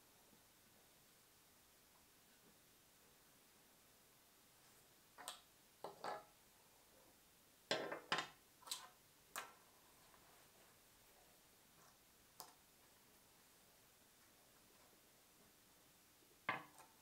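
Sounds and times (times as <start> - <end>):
tools set down on a tabletop: 5.2 - 6.3, 7.7 - 8.4.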